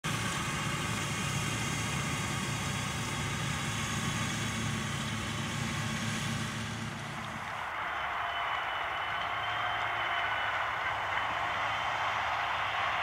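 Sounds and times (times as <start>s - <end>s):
disc harrow working soil: 0.0s - 7.6s
tractor engine under load: 0.0s - 13.0s.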